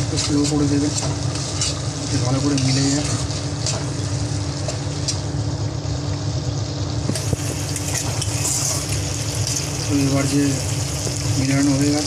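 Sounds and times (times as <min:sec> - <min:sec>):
light sizzle: 0:00.0 - 0:12.0
steady low hum: 0:00.0 - 0:12.0
spatula scraping a pan: 0:00.2 - 0:04.0, 0:07.8 - 0:09.6.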